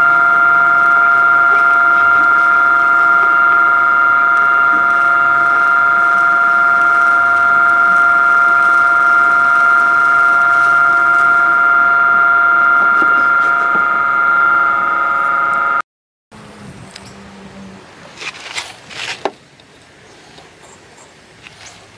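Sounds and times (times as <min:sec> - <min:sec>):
electric blower whining: 0:00.0 - 0:15.8.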